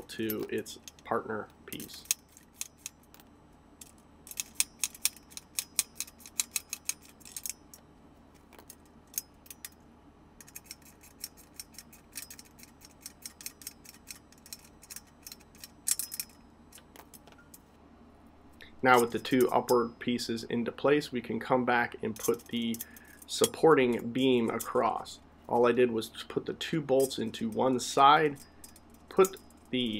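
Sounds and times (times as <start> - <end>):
ratchet wrench clicking: 4.3 - 7.6.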